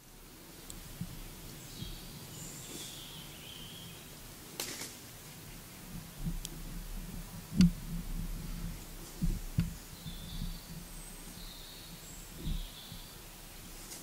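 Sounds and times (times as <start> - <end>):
distant bird chirps: 1.5 - 4.2, 9.1 - 13.4
rustling noise: 4.5 - 14.0
low bumps: 5.4 - 13.9.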